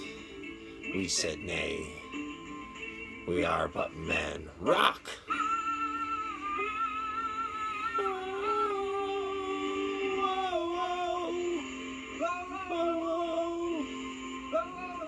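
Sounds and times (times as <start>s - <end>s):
slow melody of long held notes: 5.3s - 15.0s.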